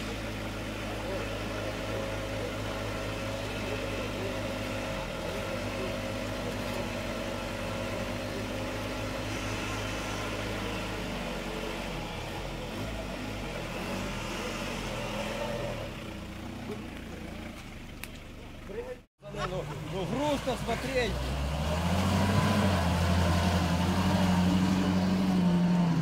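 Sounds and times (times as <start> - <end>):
suv engine at low speed: 0.0 - 26.0.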